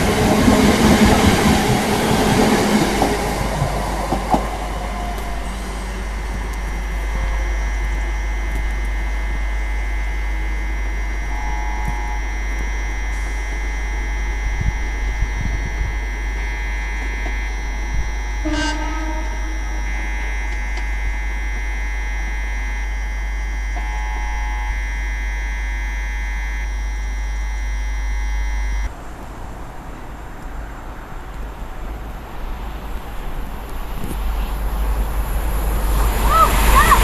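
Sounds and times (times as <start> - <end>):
electrical hum: 0.0 - 28.9
high whine: 0.0 - 28.9, 33.0 - 37.0.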